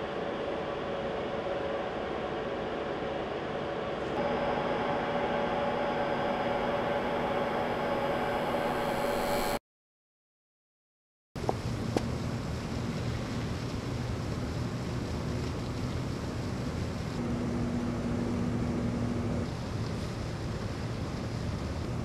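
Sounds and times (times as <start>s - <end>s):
faint steady hum: 0.0s - 9.6s, 11.4s - 22.0s.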